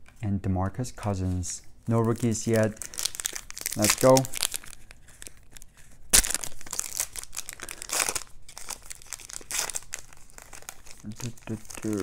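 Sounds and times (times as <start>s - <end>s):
plastic wrapper tearing and crinkling: 1.9s - 12.0s.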